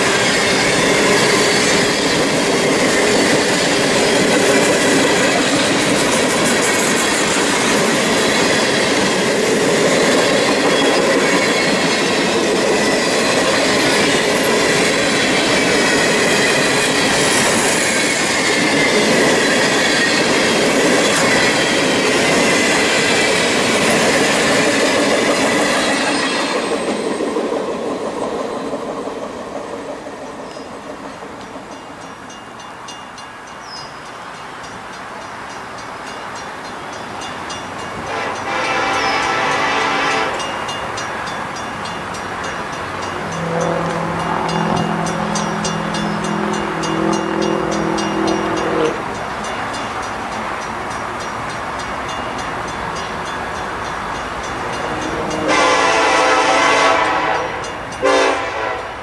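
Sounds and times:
train wheels squealing: 0.0s - 35.4s, 38.6s - 50.1s
freight train rolling past: 0.0s - 59.0s.

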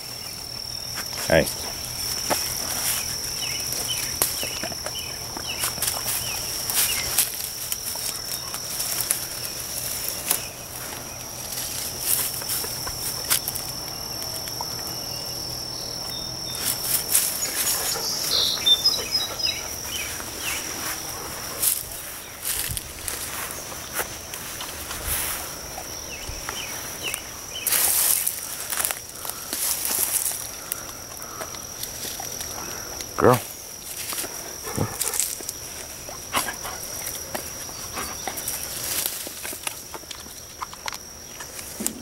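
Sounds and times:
insect trill: 0.0s - 42.0s
dog rustling through brambles: 0.9s - 13.7s.

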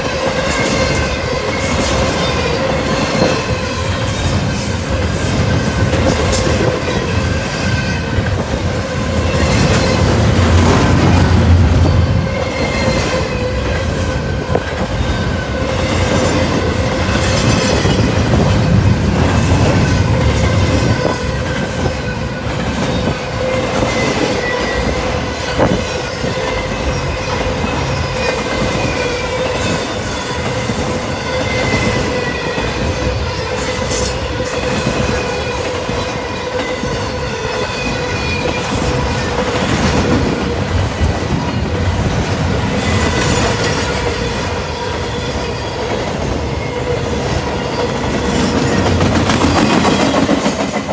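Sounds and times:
train wheels rumbling and clacking: 0.0s - 50.9s
high-pitched wheel squeal: 11.8s - 16.1s.

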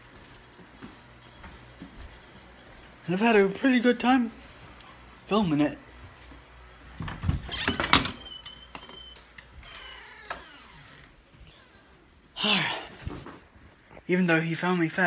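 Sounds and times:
faint squeaks: 7.5s - 11.9s.

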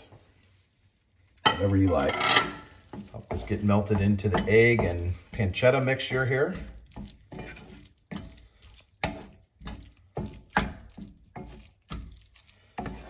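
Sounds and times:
spatula scraping a frying pan: 1.4s - 13.0s.

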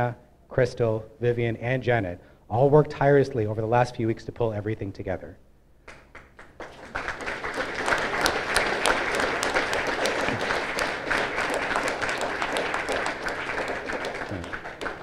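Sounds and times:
audience applauding: 5.9s - 15.0s.

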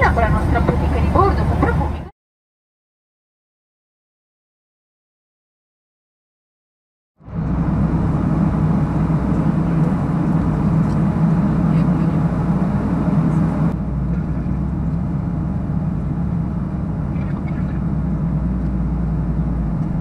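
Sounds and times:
jet engine drone in cabin: 0.0s - 2.1s, 7.2s - 20.0s
airflow rushing: 7.2s - 20.0s.

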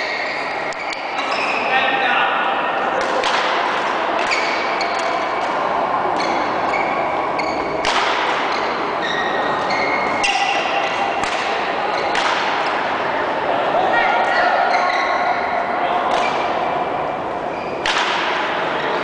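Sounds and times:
din of sports hall play: 0.0s - 19.0s
racket striking shuttlecock: 3.0s - 5.5s, 7.8s - 8.6s, 10.2s - 12.8s, 17.8s - 18.5s.

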